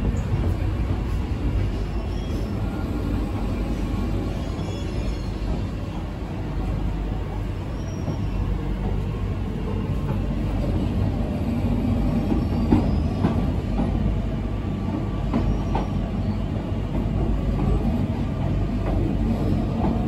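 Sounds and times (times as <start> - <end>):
train wheels rumbling on track: 0.0 - 20.0
faint high squeals: 1.6 - 2.9, 4.2 - 6.0, 7.5 - 8.7.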